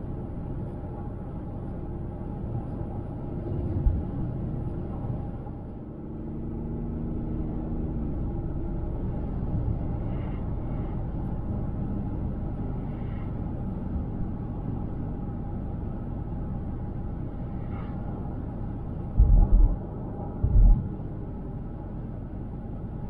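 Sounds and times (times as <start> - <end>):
road and tyre rumble: 0.0 - 23.0
heavy low thumps: 19.2 - 19.8, 20.4 - 20.9.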